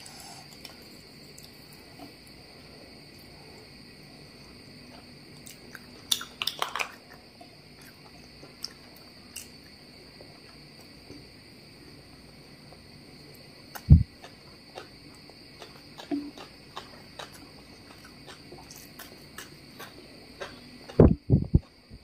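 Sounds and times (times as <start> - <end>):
crickets chirring: 0.0 - 22.0
faint eating clicks: 13.8 - 21.0.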